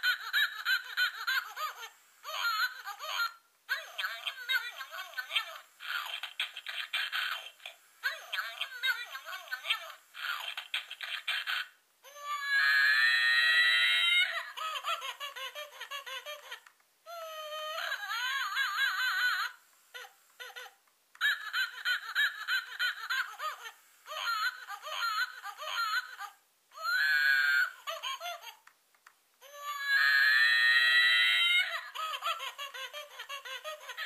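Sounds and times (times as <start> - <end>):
toy baby monkey giggling and squealing: 0.0 - 28.7, 29.4 - 34.0.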